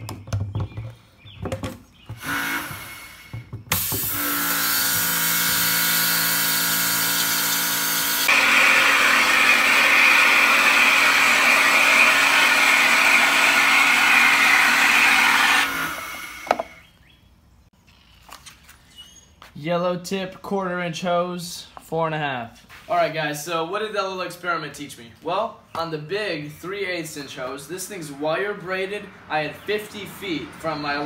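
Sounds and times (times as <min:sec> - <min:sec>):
pressure washer pump humming: 0:02.2 - 0:16.8.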